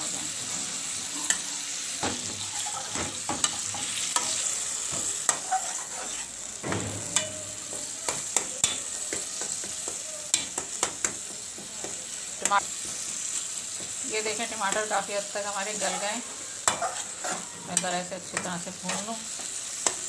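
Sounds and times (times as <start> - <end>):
food sizzling in a pan: 0.0 - 20.0
metal spoon scraping a pan: 2.2 - 9.7, 14.4 - 20.0.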